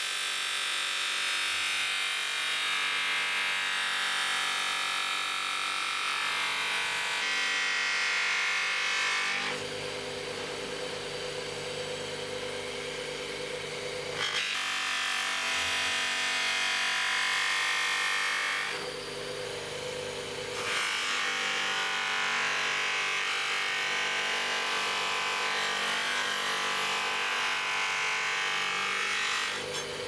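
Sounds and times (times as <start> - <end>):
polishing motor humming: 9.4 - 14.5, 18.7 - 20.6.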